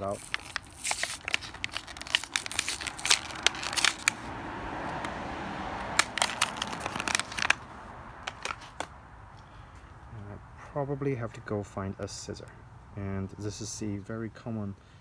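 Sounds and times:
plastic packaging crinkling: 0.0 - 4.2, 6.0 - 7.6, 8.3 - 8.9.

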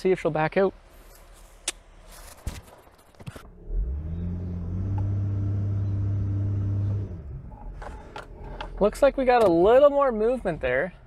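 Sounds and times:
car engine revving: 3.5 - 9.1.

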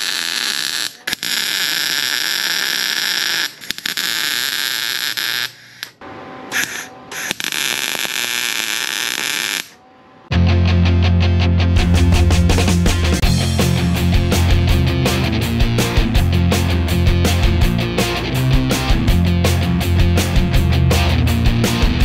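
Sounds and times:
welding arc crackling and hissing: 0.0 - 9.8.

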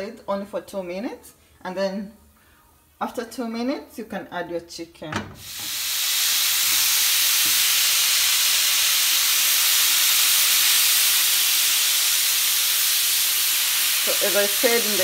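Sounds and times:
chicken sizzling on grill pan: 5.4 - 15.0.

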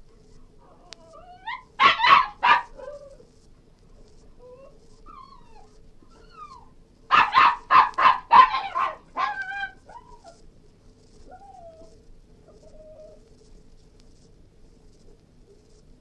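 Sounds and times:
dog whining softly: 0.6 - 3.3, 4.4 - 6.8, 8.5 - 10.5, 11.2 - 13.3
dog yelping: 0.8 - 3.2, 4.4 - 10.4, 11.3 - 12.0
dog barking sharply: 1.8 - 2.8, 7.1 - 9.4.

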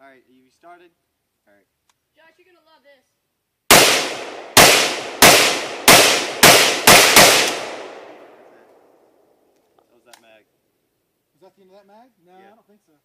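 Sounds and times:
rifle shots echoing: 3.7 - 9.0.

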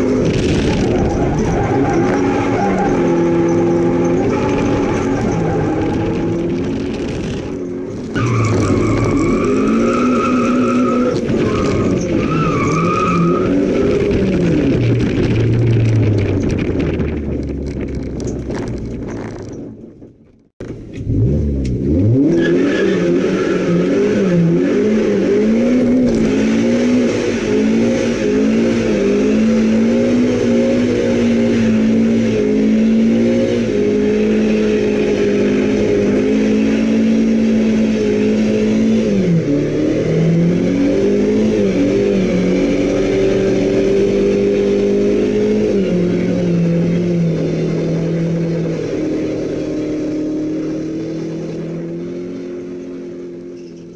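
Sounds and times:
car engine revving: 0.0 - 20.0, 20.6 - 53.9
tyre squeal: 0.7 - 6.7, 7.5 - 14.1.

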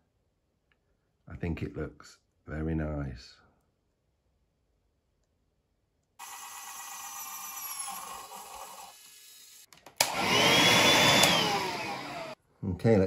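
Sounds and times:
small electric motor whining: 6.2 - 12.4.

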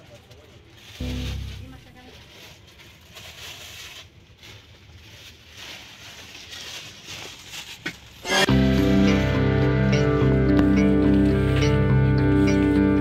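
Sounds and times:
loud background music: 8.3 - 13.0.

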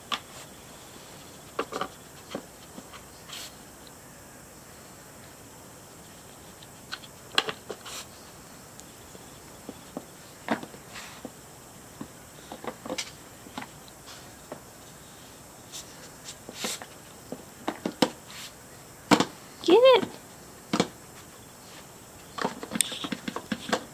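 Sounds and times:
plastic lids clicking and knocking: 20.0 - 21.0, 22.4 - 23.9.

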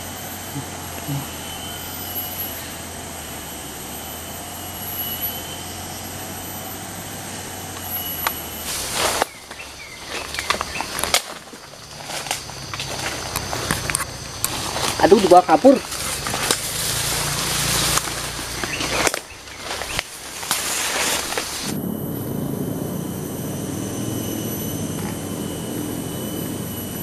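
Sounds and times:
droning background: 0.0 - 27.0
high thin whines: 0.0 - 27.0
rustling in undergrowth: 7.9 - 21.7
sharp snaps and cracks: 10.2 - 14.9, 15.9 - 21.7.

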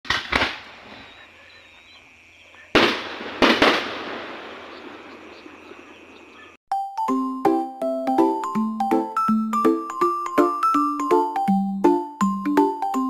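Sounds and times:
fireworks bursting with bangs: 0.0 - 1.2, 2.7 - 5.4.

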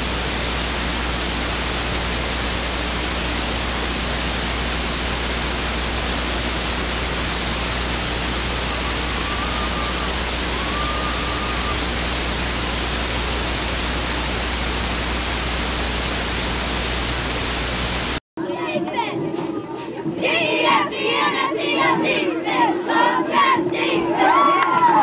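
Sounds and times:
low hum: 0.0 - 18.2
static-like hiss: 0.0 - 18.2
faint wavering tones: 8.2 - 12.0.

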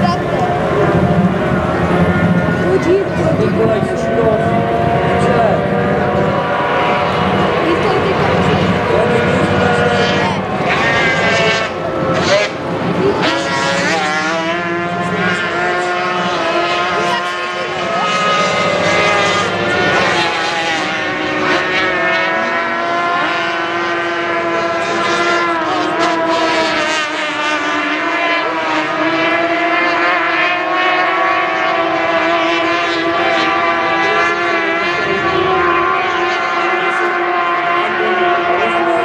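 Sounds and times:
powerboat outboard engines racing: 0.0 - 39.0.

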